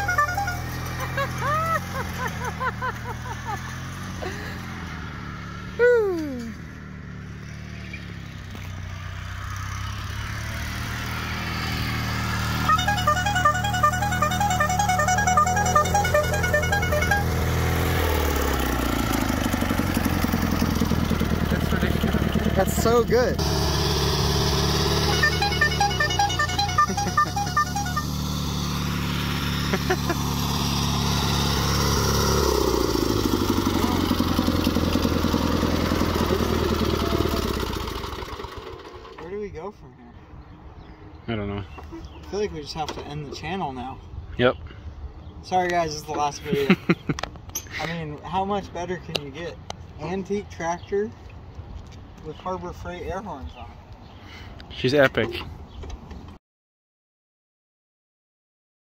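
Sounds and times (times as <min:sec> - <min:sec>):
lawn tractor engine running: 0:00.0 - 0:05.6, 0:09.4 - 0:39.3.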